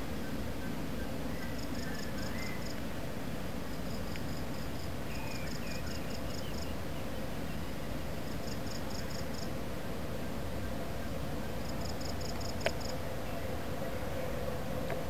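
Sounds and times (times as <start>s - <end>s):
crickets chirping: 1.3s - 2.8s, 3.6s - 6.8s, 8.1s - 9.5s, 11.0s - 13.5s.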